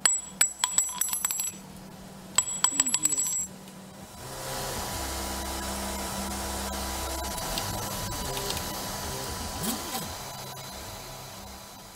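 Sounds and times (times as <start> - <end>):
faint steady tone: 0.0 - 11.9
low hum: 0.0 - 11.9
static hiss: 3.8 - 11.9.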